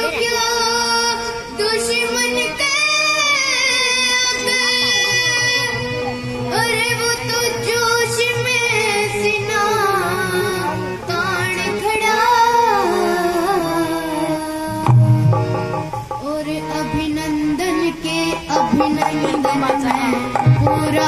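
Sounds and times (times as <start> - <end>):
boy singing into a microphone: 0.0 - 21.0
instrumental accompaniment low notes: 4.4 - 21.0.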